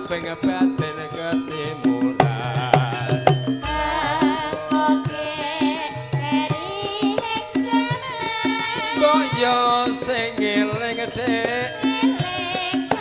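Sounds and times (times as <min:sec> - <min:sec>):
person singing with vibrato: 0:00.0 - 0:13.0
metallophones pulsing pattern: 0:03.6 - 0:06.1
hand drum strokes: 0:03.6 - 0:06.4.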